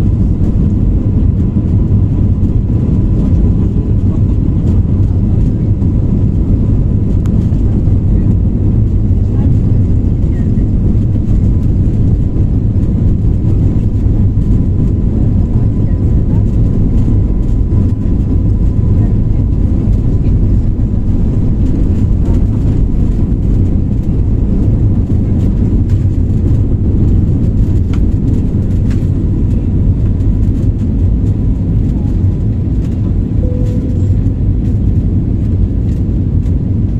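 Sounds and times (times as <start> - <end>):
jet engine rumble in cabin: 0.0 - 36.9.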